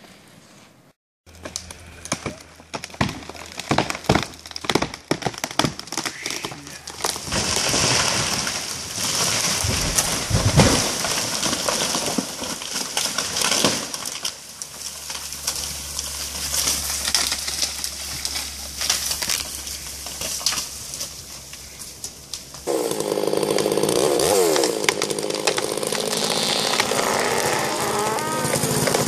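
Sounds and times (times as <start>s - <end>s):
branches rushing through canopy: 1.3s - 29.0s
cracks of breaking limbs: 1.3s - 29.0s
tree trunk crashing to ground: 1.3s - 29.0s.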